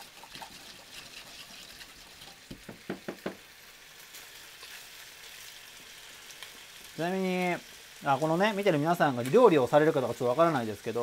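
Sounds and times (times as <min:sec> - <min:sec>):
chopsticks stirring in glass jug: 0:00.0 - 0:02.4
meat sizzling in a frying pan: 0:00.0 - 0:11.0.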